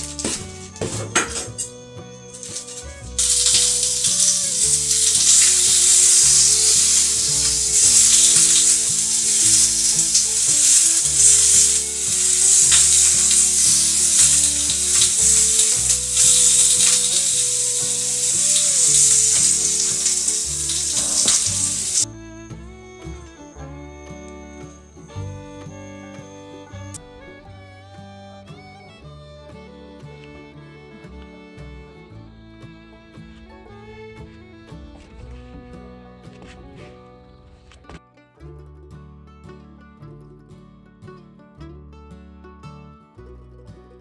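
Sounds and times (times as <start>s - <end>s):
background music with bass line: 0.0s - 44.0s
food sizzling in frying pan: 3.2s - 22.1s.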